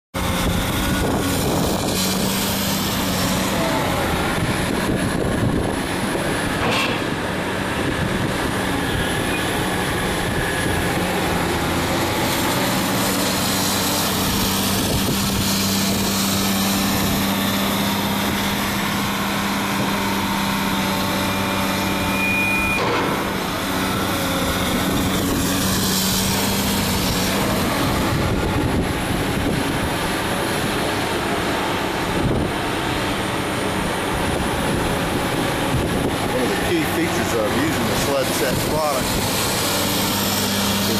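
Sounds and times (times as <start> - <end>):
machine engine humming: 0.2 - 40.9
high whine: 21.0 - 33.2.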